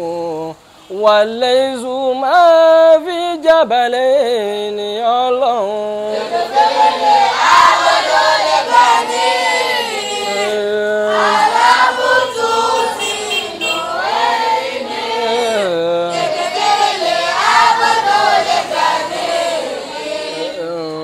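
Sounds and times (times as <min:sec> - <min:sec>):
children's choir singing: 0:06.0 - 0:21.0.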